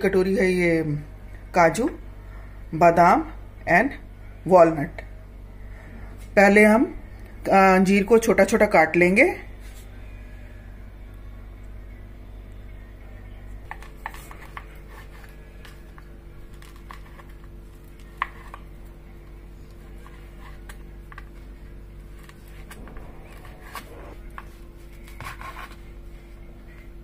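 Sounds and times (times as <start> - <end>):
low hum: 9.4 - 27.0.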